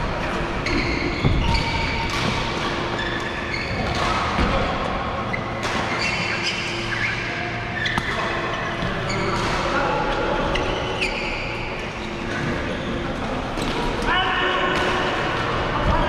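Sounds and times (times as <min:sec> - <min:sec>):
shoes squeaking on court: 0:00.3 - 0:04.2, 0:05.3 - 0:09.4, 0:10.5 - 0:13.0.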